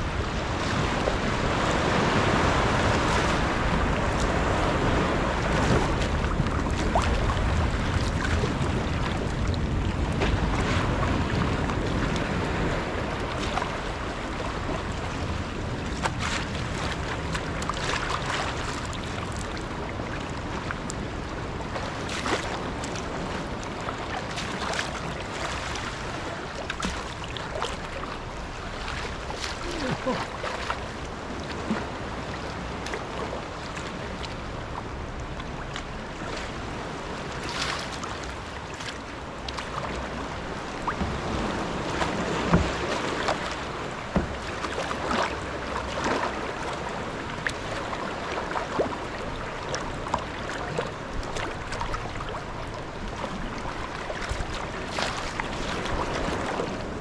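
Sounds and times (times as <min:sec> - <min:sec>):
wind on microphone: 0:00.0 - 0:26.6
kayak paddle splashing: 0:00.0 - 0:57.0
water sloshing against hull: 0:00.0 - 0:57.0.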